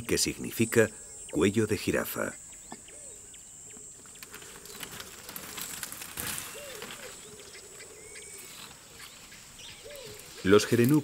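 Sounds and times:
bird calls: 0:00.0 - 0:11.0
rustling: 0:04.0 - 0:11.0.

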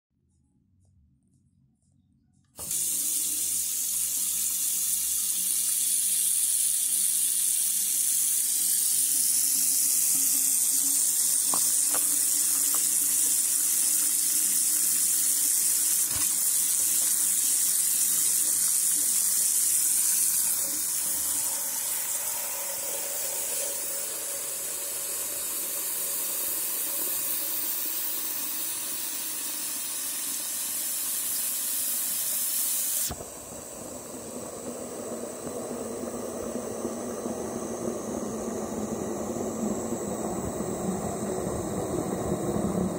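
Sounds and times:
tap water running into sink: 0:02.6 - 0:39.7.

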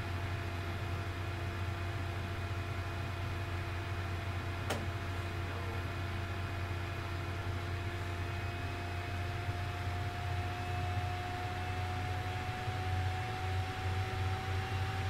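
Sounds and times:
low mechanical hum: 0:00.0 - 0:15.0
sharp click: 0:04.7 - 0:04.9.

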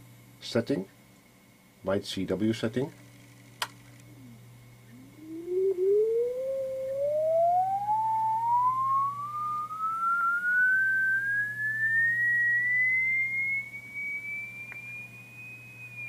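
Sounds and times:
low steady hum: 0:00.0 - 0:16.0
whistle gliding up in pitch: 0:04.9 - 0:16.0.

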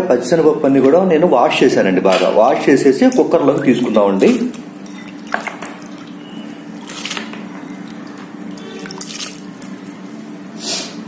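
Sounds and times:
steady low hum: 0:00.0 - 0:10.6
wet splashes and drips: 0:04.2 - 0:10.0.

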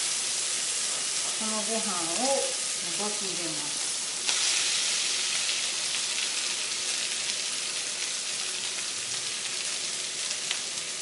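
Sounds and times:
food sizzling in frying pan: 0:00.0 - 0:11.0.

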